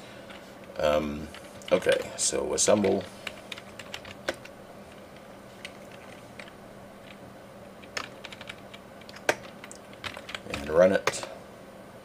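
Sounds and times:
computer keyboard typing: 0:00.3 - 0:02.1, 0:02.7 - 0:07.2, 0:07.8 - 0:11.3.

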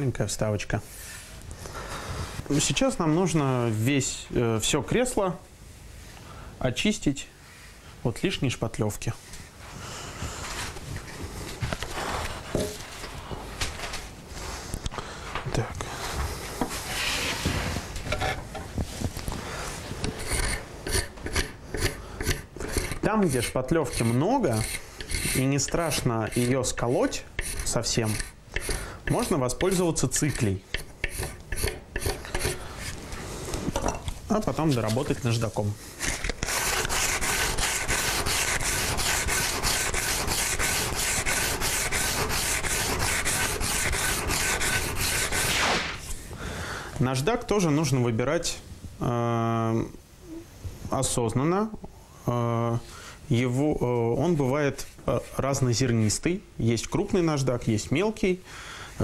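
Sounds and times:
hand tool scraping wood: 0:20.0 - 0:46.2
sandpaper rubbing on wood: 0:22.7 - 0:33.0, 0:34.6 - 0:46.1.

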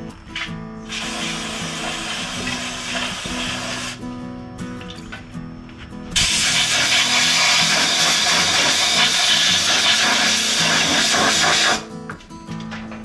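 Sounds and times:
compressed air blow gun hissing: 0:00.4 - 0:04.1, 0:06.2 - 0:12.0.

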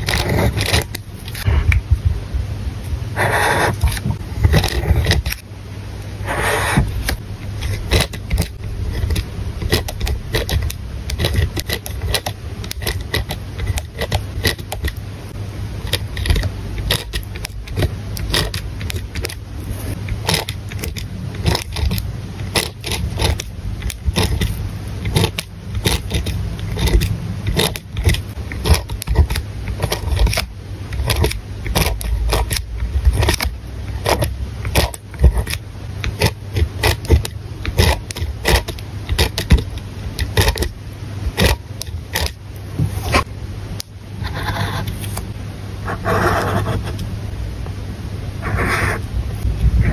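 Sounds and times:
pen scratching on paper: 0:00.0 - 0:01.7, 0:03.2 - 0:05.4, 0:06.2 - 0:06.9, 0:07.6 - 0:15.0, 0:15.8 - 0:30.4, 0:31.0 - 0:40.7, 0:44.2 - 0:45.2, 0:45.8 - 0:47.0, 0:48.4 - 0:49.0
highlighter swiped across paper: 0:06.2 - 0:06.9
low rumble: 0:45.8 - 0:49.9.

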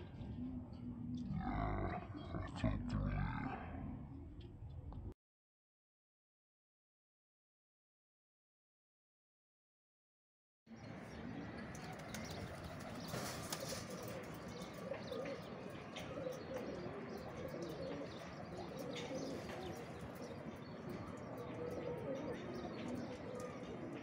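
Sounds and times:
pigeons cooing: 0:00.0 - 0:04.4, 0:11.1 - 0:24.0.

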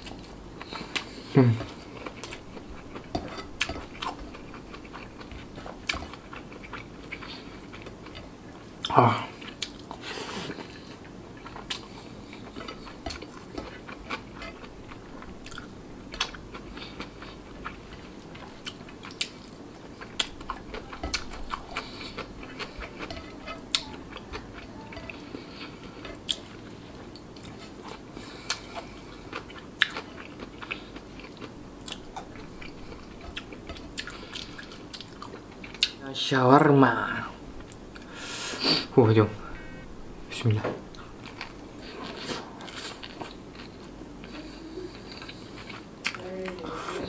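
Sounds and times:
chewing rice: 0:00.0 - 0:36.0, 0:40.9 - 0:46.7.

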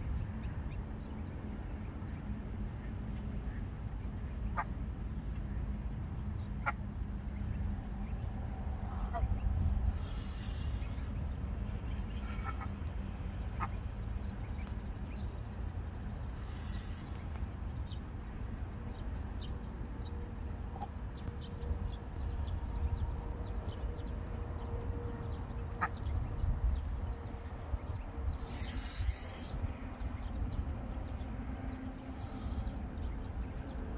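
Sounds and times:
steady low rumble: 0:00.0 - 0:33.9
geese hissing: 0:08.8 - 0:11.2, 0:12.2 - 0:12.7, 0:16.2 - 0:17.4, 0:27.2 - 0:33.1.

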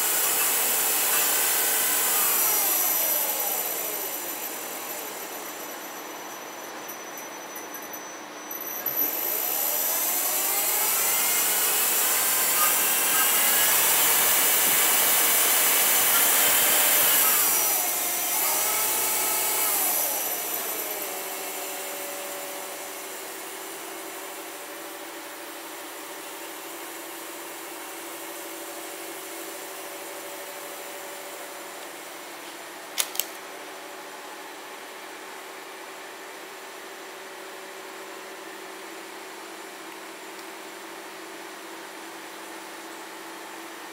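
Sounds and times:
lathe spindle whining: 0:00.0 - 0:24.7.

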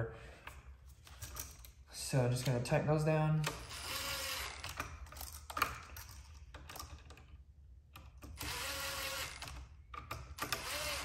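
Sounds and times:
cordless driver spinning screws: 0:03.5 - 0:05.3, 0:08.3 - 0:09.7, 0:10.4 - 0:11.0.

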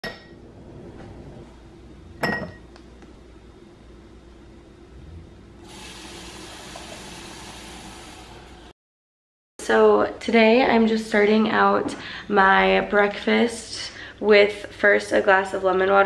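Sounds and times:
tap water running into glass: 0:05.6 - 0:08.6.

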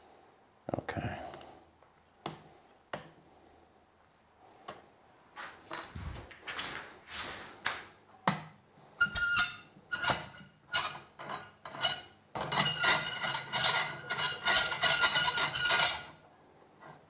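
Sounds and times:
metallic rattling and grinding: 0:09.0 - 0:16.2.

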